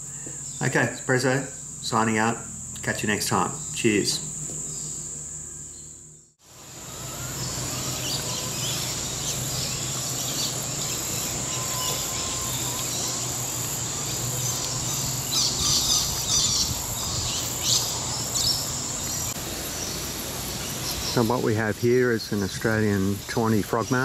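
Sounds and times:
high-pitched insect drone: 0.0s - 24.0s
bird chirps: 3.4s - 21.5s.

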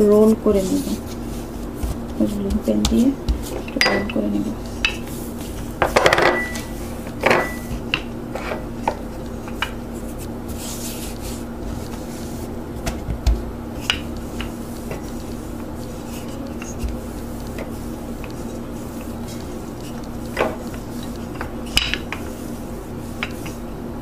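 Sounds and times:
soft rubbing: 0.0s - 5.8s, 8.4s - 12.6s, 13.7s - 23.7s
steady low hum: 0.0s - 24.0s
rolling pin knocks and taps: 1.8s - 4.2s.

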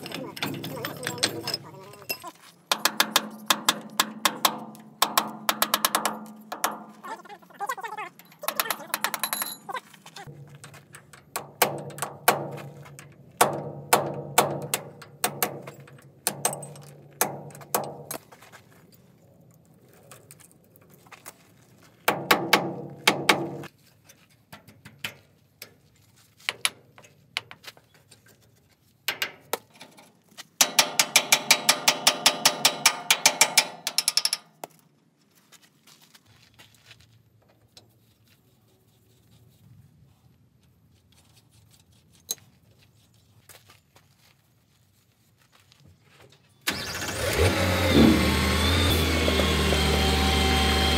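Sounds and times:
hammer striking steel: 2.7s - 7.0s, 13.4s - 18.2s, 30.6s - 34.4s.

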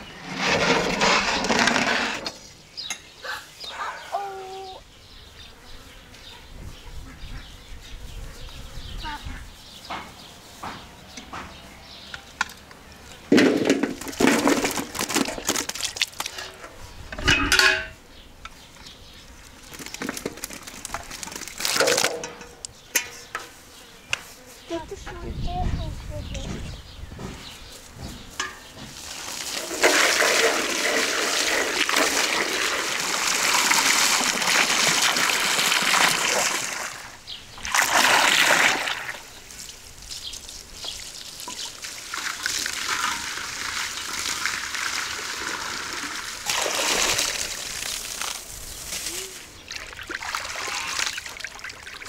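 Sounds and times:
water splashing in metal basin: 13.5s - 16.6s, 29.0s - 39.4s, 41.2s - 48.4s, 49.7s - 52.0s.

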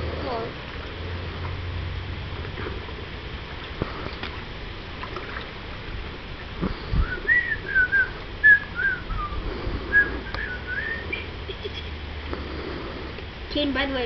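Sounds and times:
person whistling a tune: 7.0s - 11.3s.

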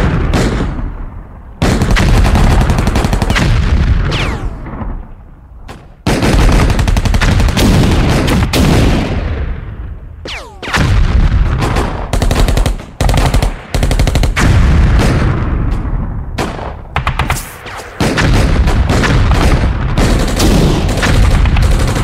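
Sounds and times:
gunshots: 0.0s - 22.0s
machine-gun fire: 1.6s - 5.0s, 6.1s - 9.2s, 10.3s - 15.4s, 16.6s - 22.0s.

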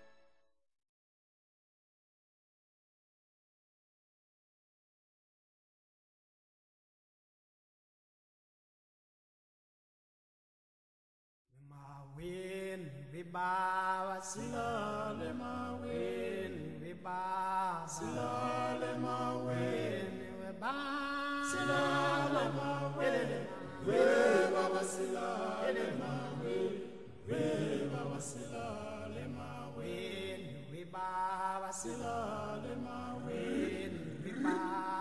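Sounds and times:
voices singing chant-like notes: 13.5s - 35.0s.

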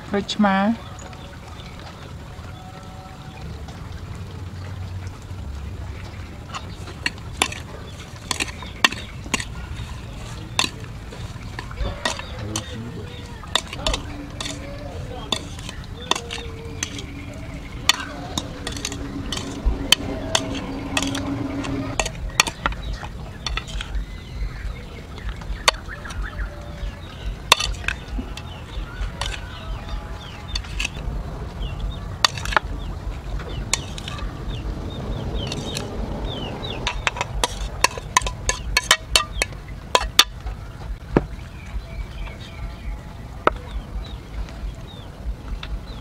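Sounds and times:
metal spoon clinking on steel: 7.4s - 12.8s, 13.4s - 17.2s, 17.9s - 22.7s, 33.8s - 34.2s, 36.8s - 40.3s.

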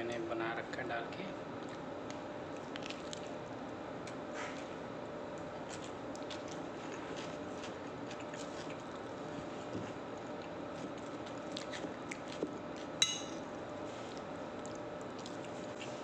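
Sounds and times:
steady background hum: 0.0s - 16.0s
ringing clink: 13.0s - 13.4s.

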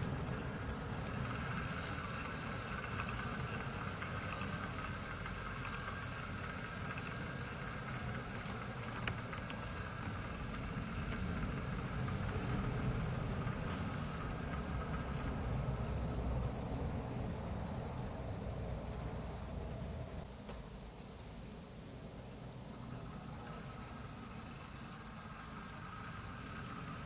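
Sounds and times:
diesel locomotive engine idling: 0.0s - 20.5s.

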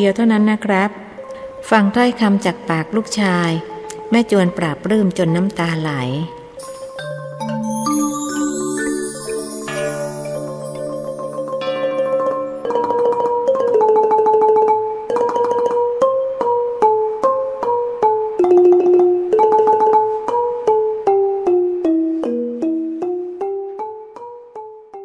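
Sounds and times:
keyboard melody: 6.4s - 15.0s.

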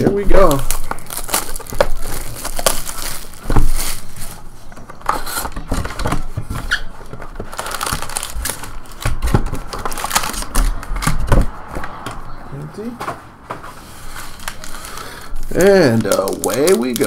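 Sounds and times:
foil packs rustling: 0.0s - 11.2s, 13.8s - 17.0s
plastic wrap crinkling and tearing: 0.0s - 11.2s, 14.1s - 17.0s.

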